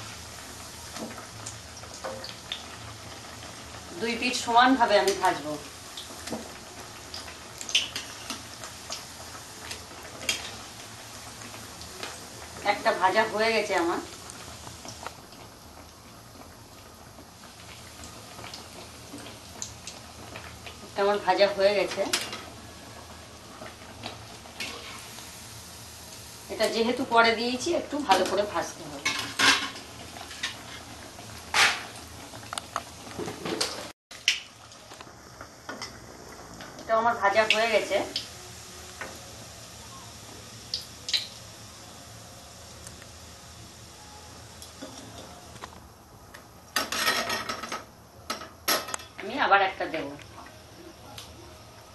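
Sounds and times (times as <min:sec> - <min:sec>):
food sizzling in hot oil: 0:00.0 - 0:51.9.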